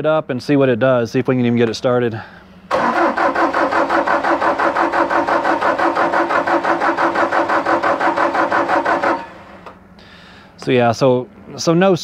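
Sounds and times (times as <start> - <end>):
diesel engine cranking on starter: 2.7 - 9.8.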